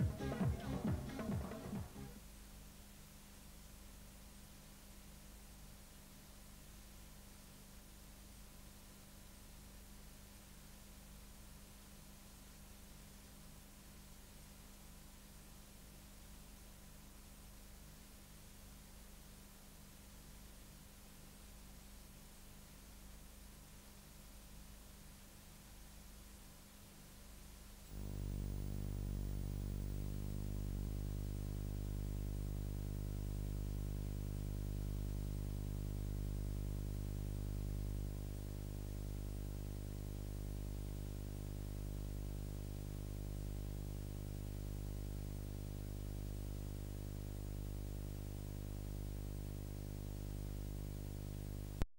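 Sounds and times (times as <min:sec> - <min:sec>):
electrical hum: 0:00.0 - 0:02.3, 0:27.8 - 0:51.9.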